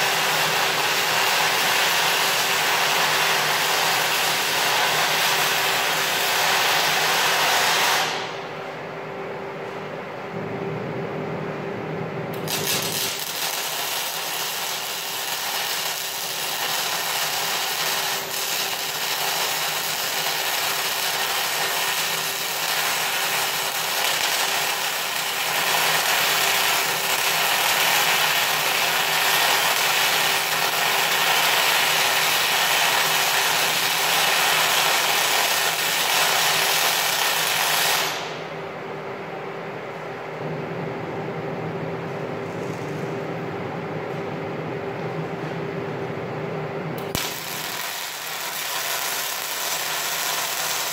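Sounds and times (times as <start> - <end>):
welding arc crackling: 0.0 - 8.4, 12.4 - 38.4, 47.0 - 50.9
steady hum: 0.0 - 30.8, 36.7 - 50.9.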